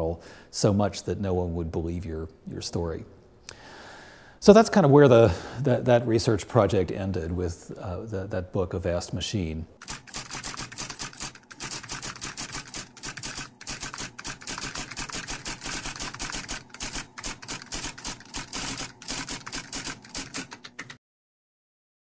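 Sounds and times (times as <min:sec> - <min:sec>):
typewriter key clacks: 0:09.8 - 0:21.0.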